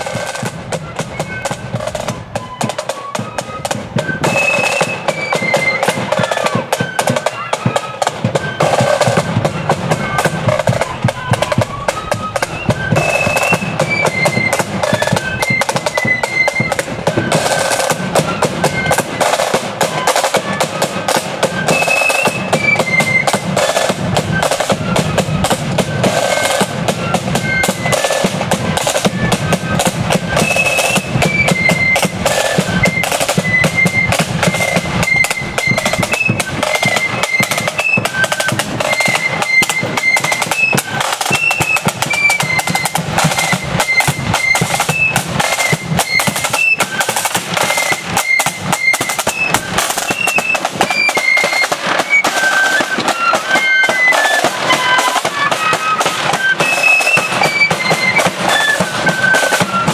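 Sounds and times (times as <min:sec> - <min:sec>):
high flute melody: 0:00.0 - 0:59.9
side drum strokes and rolls: 0:00.0 - 0:59.9
bass drum beats: 0:09.3 - 0:15.4.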